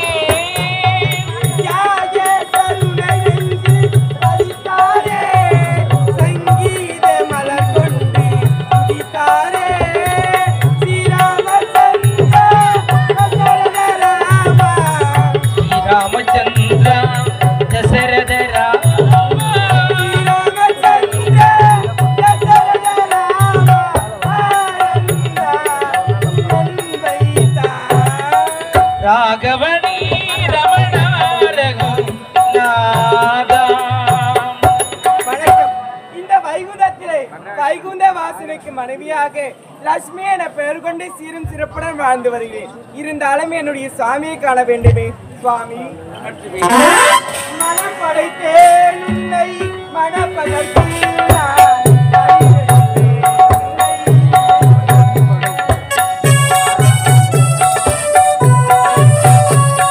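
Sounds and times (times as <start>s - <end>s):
hand drum rhythm: 0.0s - 35.8s, 49.1s - 59.9s
harmonium: 0.0s - 59.9s.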